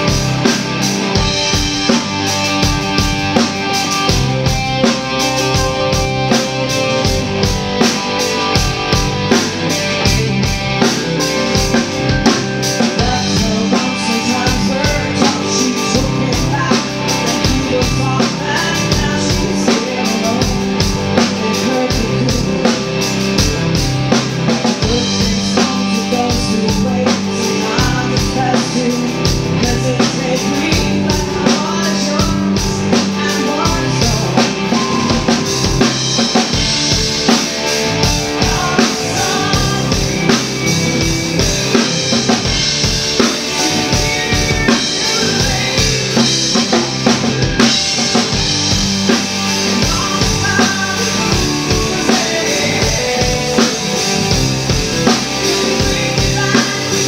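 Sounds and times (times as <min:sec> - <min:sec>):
drum beat: 0:00.0 - 0:16.7, 0:32.2 - 0:57.0
live band playing: 0:00.0 - 0:57.0
woman singing: 0:12.7 - 0:23.8, 0:24.7 - 0:35.8, 0:38.0 - 0:40.6, 0:43.6 - 0:48.4, 0:49.6 - 0:57.0.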